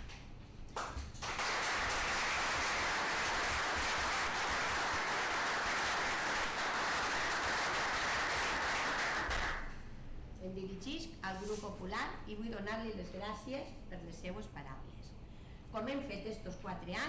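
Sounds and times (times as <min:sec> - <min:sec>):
audience applauding: 0:00.8 - 0:09.7.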